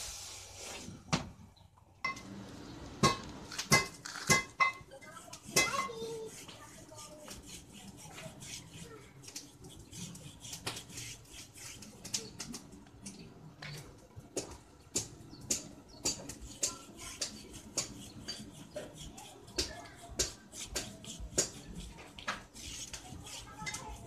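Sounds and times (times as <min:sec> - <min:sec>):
paintbrush clicking on steel bars: 0:05.2 - 0:13.2, 0:15.0 - 0:24.0.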